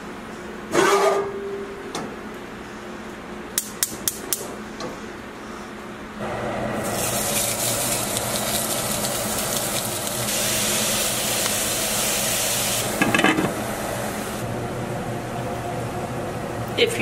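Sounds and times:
sausages sizzling in a frying pan: 6.8s - 13.0s.

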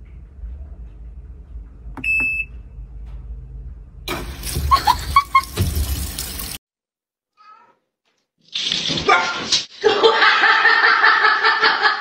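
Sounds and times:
washing machine hum: 0.0s - 6.6s.

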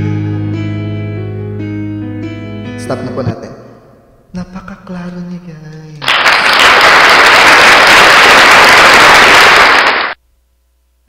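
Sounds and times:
crowd applause: 6.0s - 10.2s.

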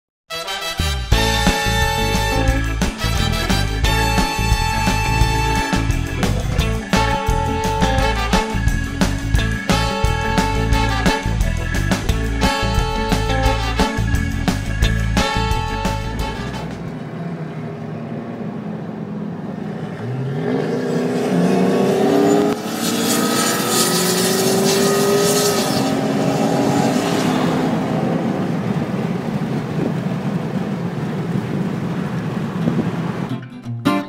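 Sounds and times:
car engines accelerating: 1.1s - 33.4s
rushing wind noise: 21.0s - 33.4s.

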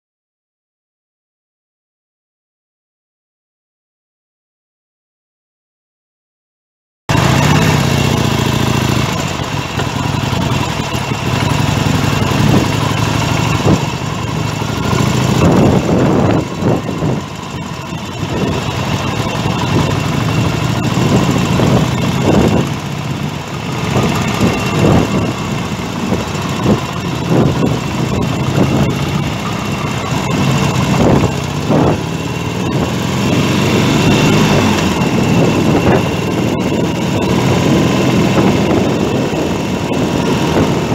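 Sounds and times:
motorcycle engine running: 7.1s - 40.9s
wind noise on microphone: 11.7s - 40.9s.

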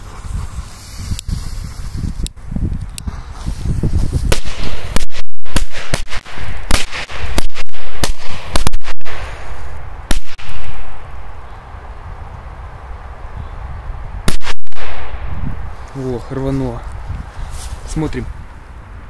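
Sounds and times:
firecrackers banging: 4.2s - 11.2s.

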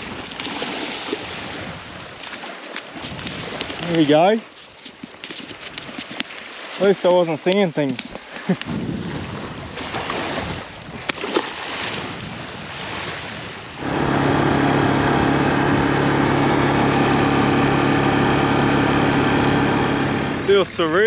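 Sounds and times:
waves: 0.0s - 21.0s
wind on microphone: 3.0s - 3.8s, 8.4s - 21.0s
vehicle engine idling: 13.8s - 21.0s.

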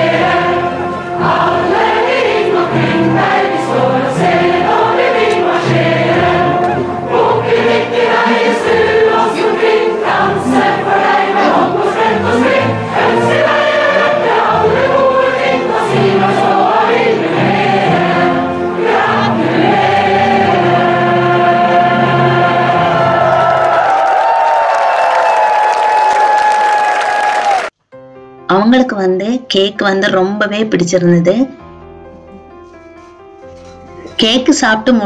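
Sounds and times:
instrumental backing: 0.0s - 23.3s
choir singing: 0.0s - 25.4s.

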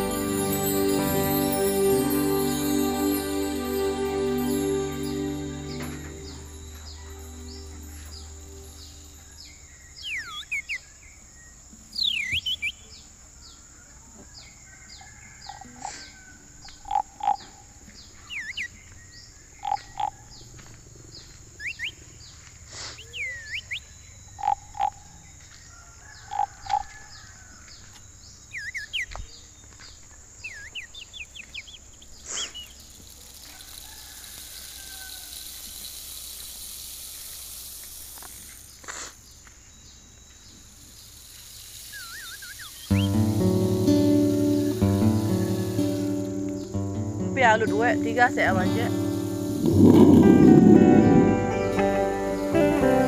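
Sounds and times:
soft hiss: 0.0s - 10.1s, 32.1s - 39.4s, 40.4s - 53.0s
high insect drone: 0.0s - 10.2s, 32.4s - 53.0s
downward-sweeping chirps: 0.0s - 10.6s, 41.9s - 53.0s
short paired low calls: 48.8s - 53.0s.

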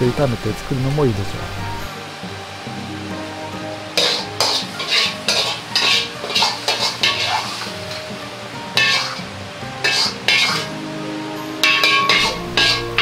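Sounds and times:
quiet background music: 0.0s - 13.0s
ladle scraping a wok: 4.0s - 8.2s, 8.8s - 10.8s, 11.6s - 13.0s.

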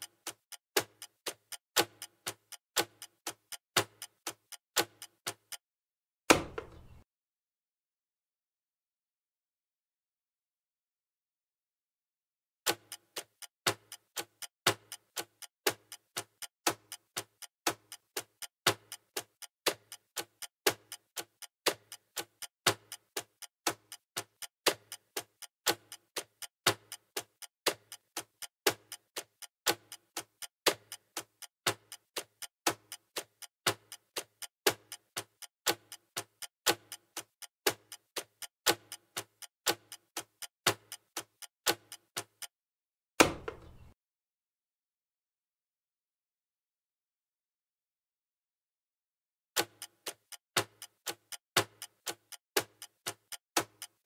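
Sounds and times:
clock ticking: 0.0s - 5.6s, 12.7s - 42.5s, 49.6s - 54.0s.

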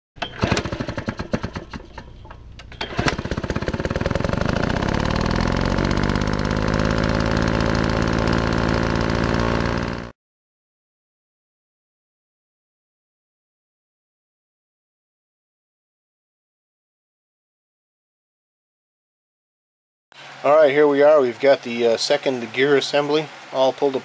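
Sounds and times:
engine sputtering and running: 0.2s - 10.1s.

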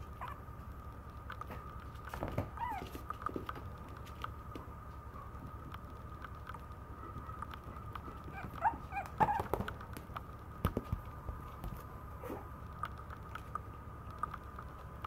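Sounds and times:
puppy whining: 0.0s - 0.5s, 2.1s - 3.4s, 6.9s - 9.8s
faint steady hum: 0.0s - 15.0s.

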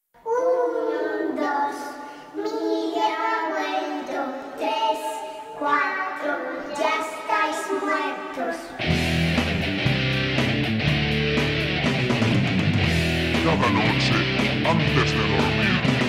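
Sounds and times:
high voice singing unaccompanied: 0.2s - 8.8s.

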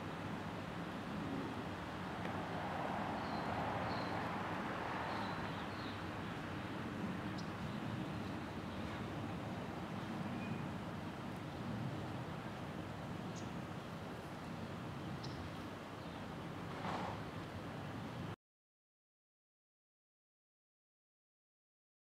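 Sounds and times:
traffic hiss: 0.0s - 18.4s
faint bird chirps: 10.3s - 10.7s.

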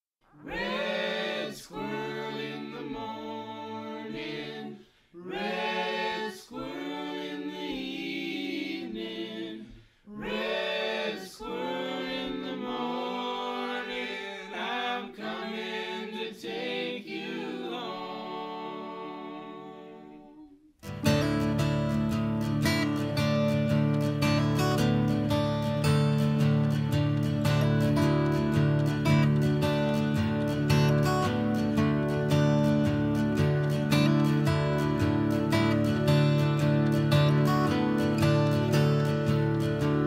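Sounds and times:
voices singing a cappella: 0.3s - 20.7s
acoustic guitar strum: 20.8s - 40.0s.

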